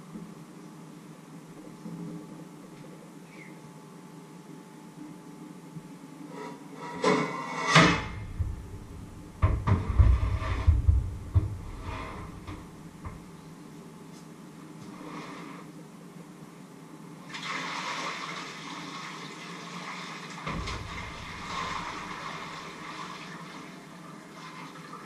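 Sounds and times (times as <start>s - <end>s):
heavy thuds: 7.8s - 13.3s, 20.5s - 22.7s
tap water running: 17.4s - 25.0s.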